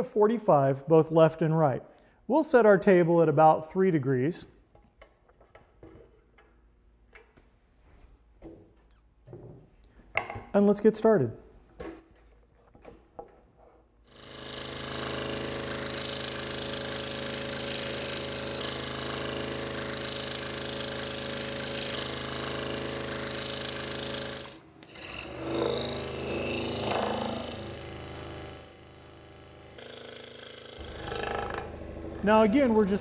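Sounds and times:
scroll saw cutting wood: 14.1s - 33.0s.

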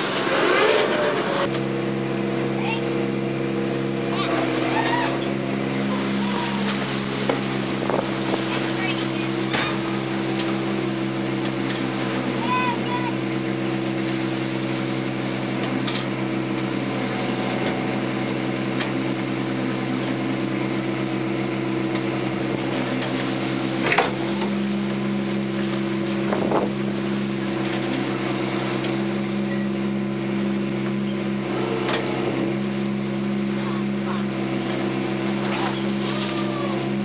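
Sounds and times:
engine and machinery hum: 0.0s - 37.0s
short rising squeal: 4.1s - 6.9s.

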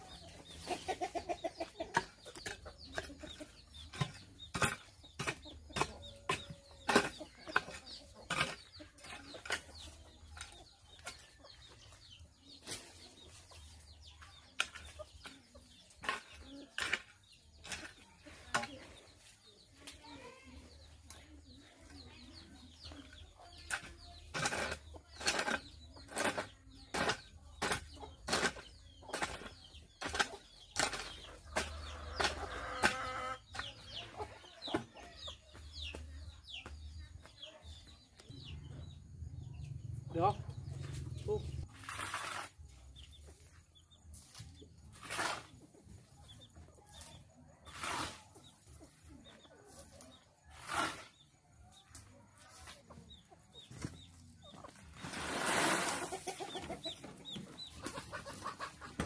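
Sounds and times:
chickens clucking: 0.0s - 59.0s.

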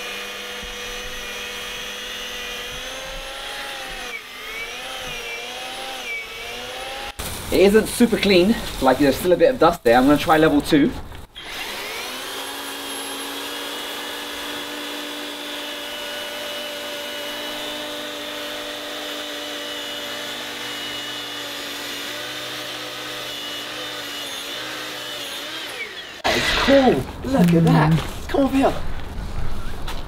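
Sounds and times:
electric motor whining: 0.0s - 7.2s, 11.4s - 27.0s.

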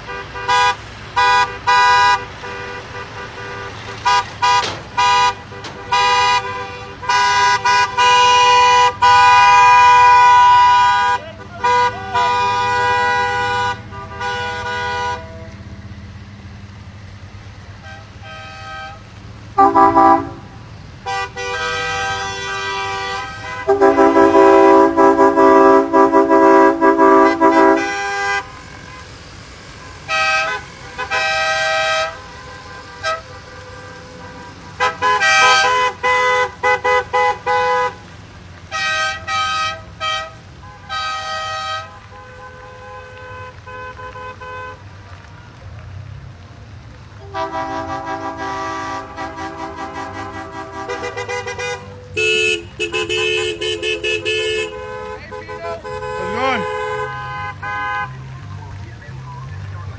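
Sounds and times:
car horns honking: 0.0s - 15.7s, 17.8s - 38.0s, 47.2s - 59.0s
engines and tyres: 0.0s - 59.9s.

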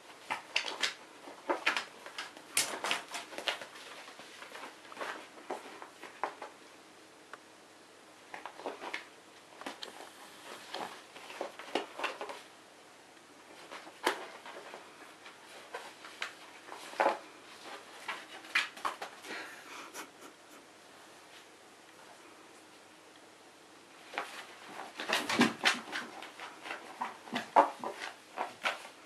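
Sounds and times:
cat scuffling with toy on floor: 0.1s - 6.6s, 8.3s - 12.5s, 13.4s - 19.4s, 24.0s - 29.0s.

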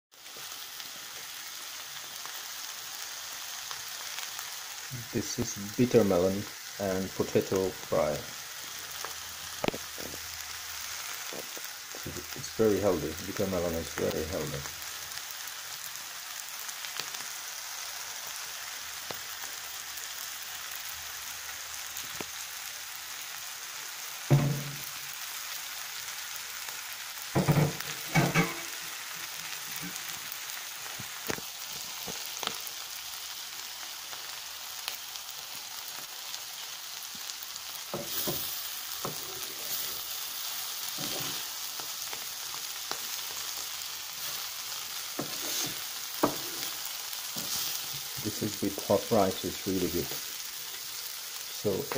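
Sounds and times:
food sizzling in oil: 0.1s - 51.9s
loud short thumps: 24.3s - 24.8s
spatula scraping a pan: 40.9s - 41.6s, 44.2s - 48.1s.

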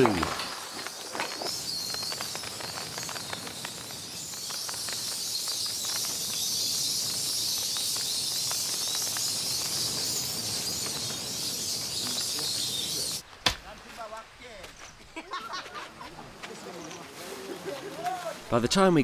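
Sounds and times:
bats chittering and clicking: 0.0s - 13.2s, 16.2s - 18.1s.

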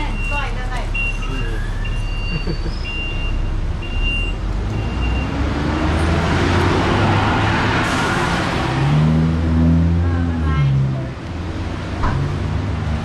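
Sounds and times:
high electronic beeps: 0.1s - 5.3s
bus engine revving: 1.1s - 13.0s.

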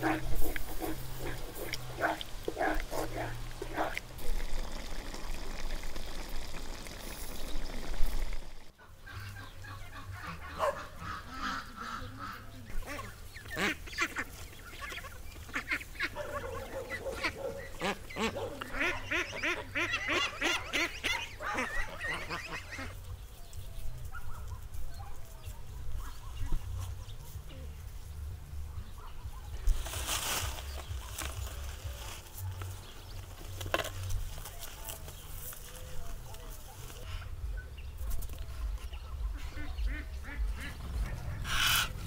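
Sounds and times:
geese honking: 0.0s - 5.1s, 7.8s - 24.6s, 38.8s - 42.0s.

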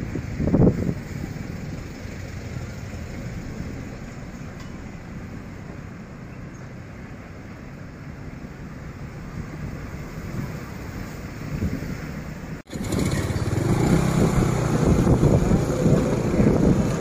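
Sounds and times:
wind on microphone: 0.0s - 1.8s, 9.3s - 17.0s
motorbike and scooter traffic: 0.0s - 17.0s.

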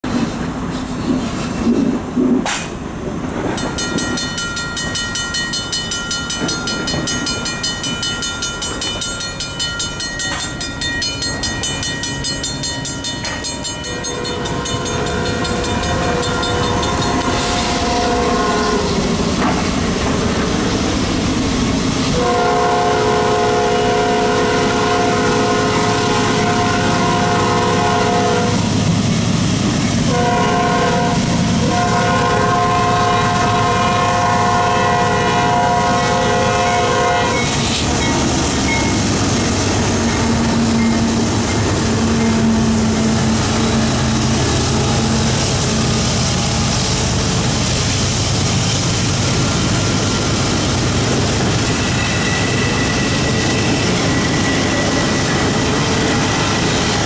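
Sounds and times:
low rumble of train: 0.0s - 57.0s
crossing bell ringing: 3.5s - 18.6s, 36.6s - 44.0s, 51.4s - 57.0s
locomotive air horn blasts: 16.0s - 19.0s, 22.2s - 28.7s, 30.1s - 37.5s.

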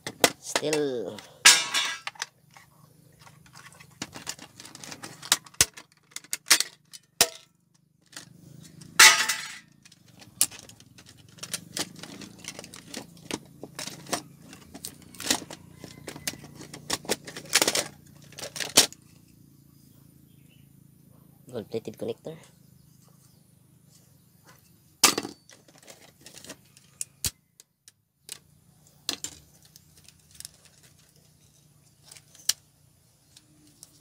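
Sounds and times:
parts clicking and clattering: 0.0s - 19.0s, 25.0s - 34.0s
scraping rattle: 0.6s - 7.4s, 8.1s - 18.9s.

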